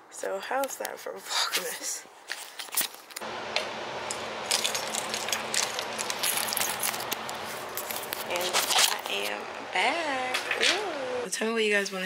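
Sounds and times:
steady hum: 3.2 - 11.3
keys jangling at door lock: 4.4 - 8.5.

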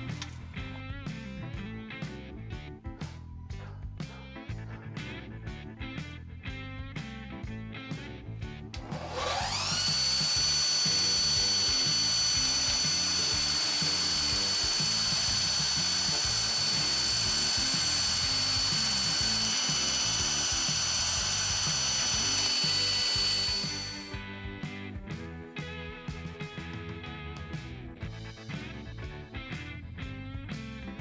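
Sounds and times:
background music: 0.0 - 31.0
belt grinder whining: 8.8 - 24.2.

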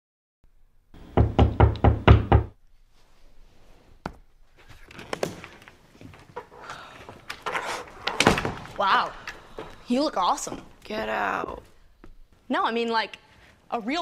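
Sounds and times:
rapid knocking on a door: 1.2 - 2.6
soft rustling: 2.6 - 8.0.

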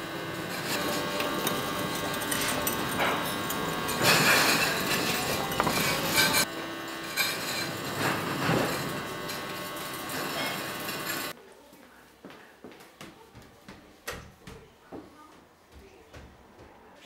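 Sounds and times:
kiln car rolling on rails: 0.0 - 6.5, 7.1 - 11.3.

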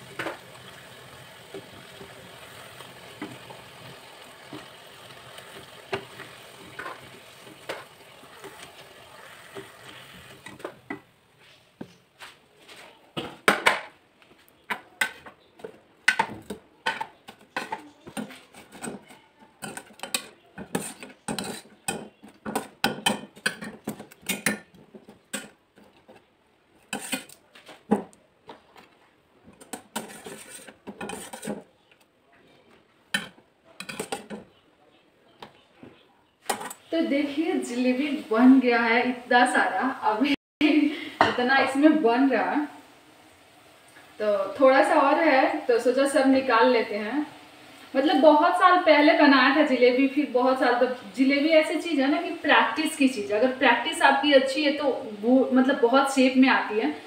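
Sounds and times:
frying in hot oil sizzling: 0.0 - 11.0, 26.8 - 27.4, 36.5 - 57.0
spatula taps: 14.7 - 26.2.

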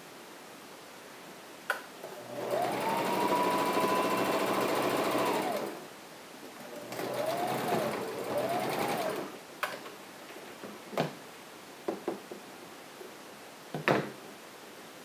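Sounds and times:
sewing machine running: 2.3 - 5.8, 6.7 - 9.3.

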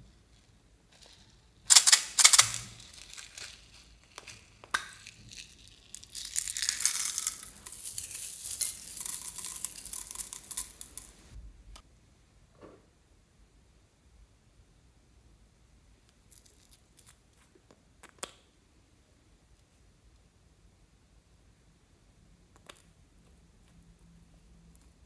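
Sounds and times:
metal jingle bells jingling: 5.2 - 11.3.

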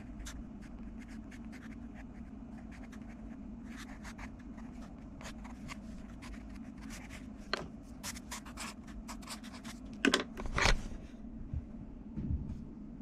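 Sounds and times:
pencil scratching on paper: 0.0 - 7.4, 8.0 - 9.8.

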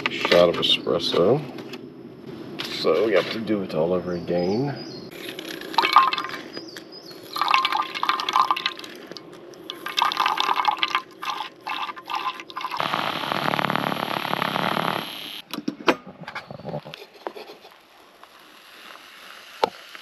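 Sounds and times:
water pouring and splashing: 5.7 - 6.5, 7.3 - 12.9.

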